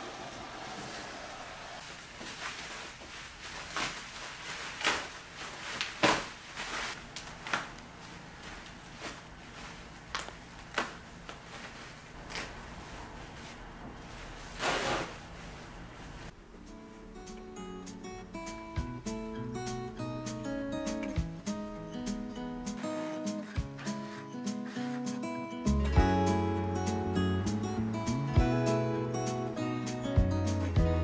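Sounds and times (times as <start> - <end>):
plastic wrap crinkling: 1.8 - 16.3.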